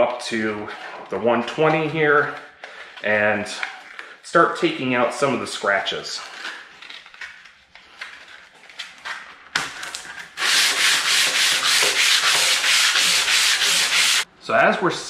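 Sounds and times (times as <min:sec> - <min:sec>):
sandpaper rubbing on steel: 0:10.4 - 0:14.3.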